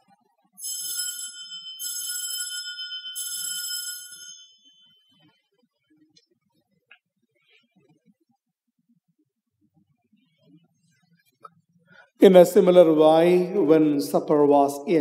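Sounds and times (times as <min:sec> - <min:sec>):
altar bells ringing: 0:00.6 - 0:05.1.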